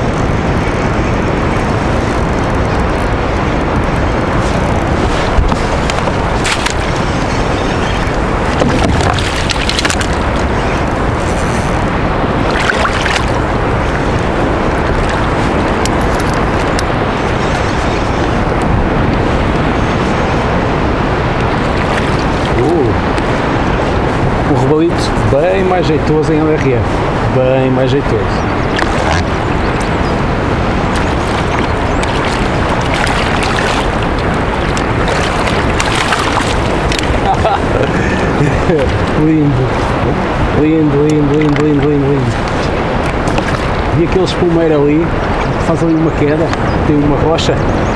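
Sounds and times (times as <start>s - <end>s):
water splashes: 0.0s - 47.4s
choppy sea sloshing: 0.0s - 47.9s
wind buffeting microphone: 0.0s - 47.9s
fish thrashing and splashing: 3.8s - 16.8s, 21.5s - 22.8s, 30.9s - 37.7s, 42.3s - 43.9s.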